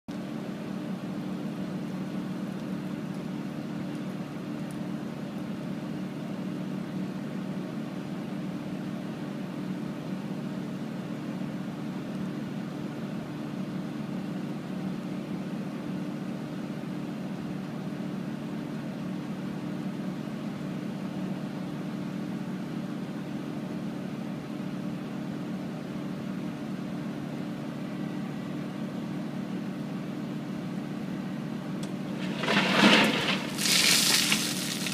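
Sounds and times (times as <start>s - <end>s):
heavy engine droning: 31.7s - 34.9s.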